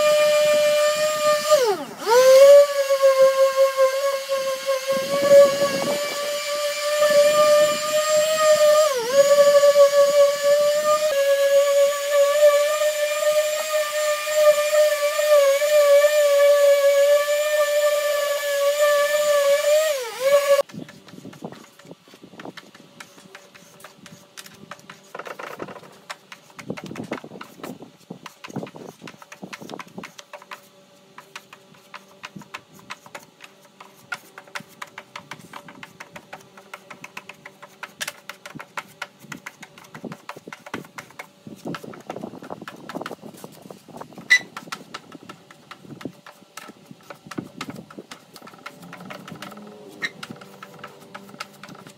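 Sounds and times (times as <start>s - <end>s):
hand sanding scratchy strokes: 0.0s - 51.9s.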